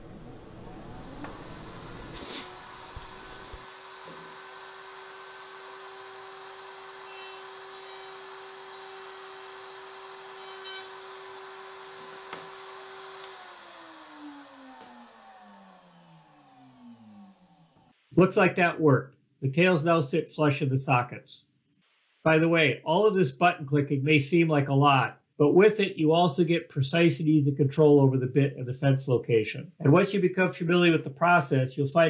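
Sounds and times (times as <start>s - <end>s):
router winding down: 0.0s - 17.9s
router bit cutting wood: 0.5s - 17.9s.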